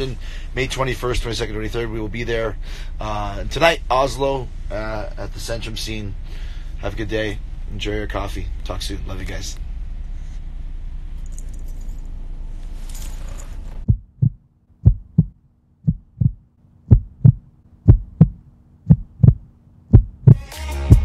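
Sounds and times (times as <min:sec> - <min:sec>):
bus interior rumble: 0:00.0 - 0:21.0
faint steady hum: 0:00.0 - 0:21.0
heartbeat sound effect: 0:13.9 - 0:21.0
electronic music: 0:20.3 - 0:21.0.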